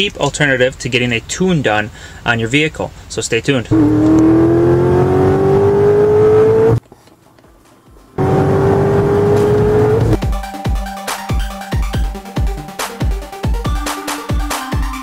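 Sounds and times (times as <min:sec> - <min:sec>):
car engine accelerating: 0:03.7 - 0:06.8, 0:08.2 - 0:10.2
electronic music with steady beat: 0:09.3 - 0:15.0.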